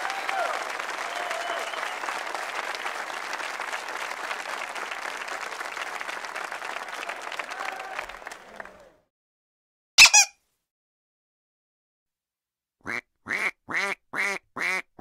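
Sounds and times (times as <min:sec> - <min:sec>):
audience applauding: 0:00.0 - 0:09.1.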